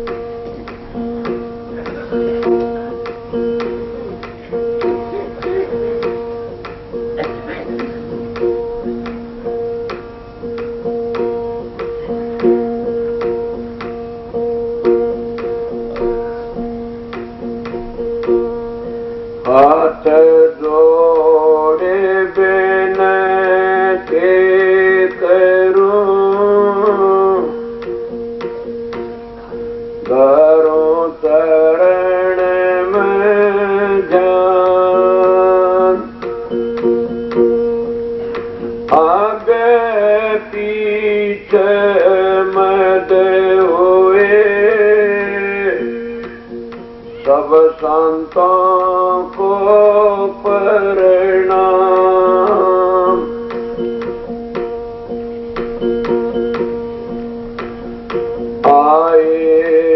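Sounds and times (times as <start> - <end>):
instrument drone: 0.0 - 59.9
man singing a hymn: 19.4 - 27.7, 30.1 - 36.2, 38.9 - 46.6, 47.2 - 53.5, 58.6 - 59.9.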